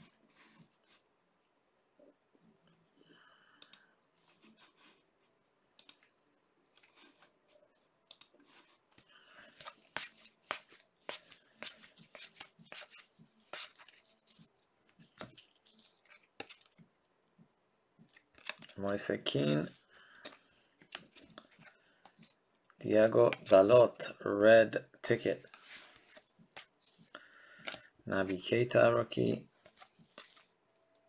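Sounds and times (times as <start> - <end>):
trading cards snapping and rustling: 9.5 - 14.4, 15.0 - 16.9, 18.0 - 18.8.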